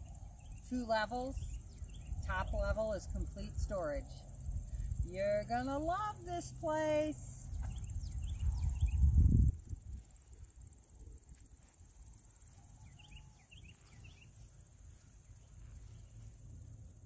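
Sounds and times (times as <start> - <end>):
bird chirping: 0.0 - 2.8, 7.4 - 9.2, 12.5 - 14.5
insect chorus trilling: 0.0 - 17.0
low rumble on microphone: 7.4 - 11.4.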